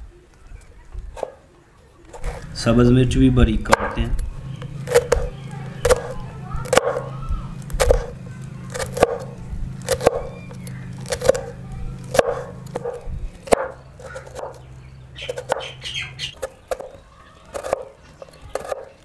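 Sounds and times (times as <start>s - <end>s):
steady low hum: 0.0s - 19.0s
knife slicing onion: 4.6s - 14.6s, 15.2s - 15.8s, 16.4s - 19.0s
knife chopping on wooden board: 4.8s - 7.1s, 7.7s - 14.6s, 15.2s - 15.8s, 16.4s - 19.0s.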